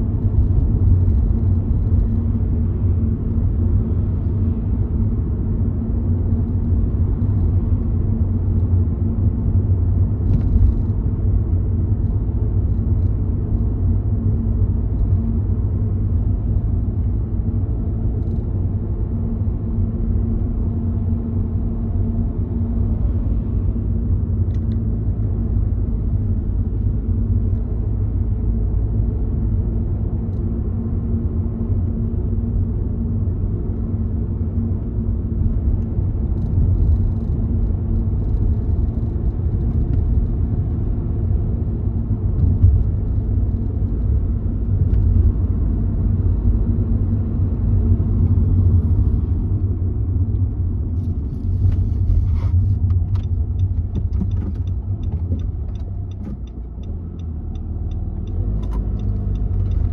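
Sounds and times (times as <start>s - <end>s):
car road noise rumble: 0.0s - 59.9s
faint ticks: 52.9s - 59.9s.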